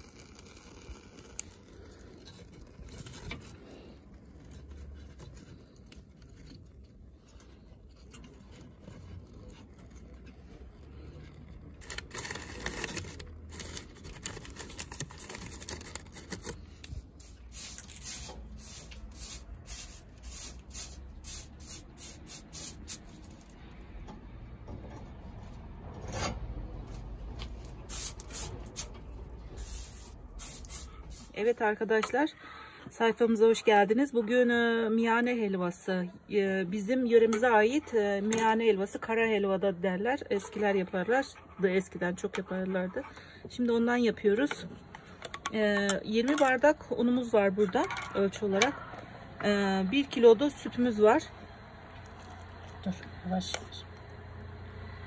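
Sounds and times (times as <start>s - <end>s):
hand brush sweeping: 17.0s - 23.5s, 27.6s - 31.6s.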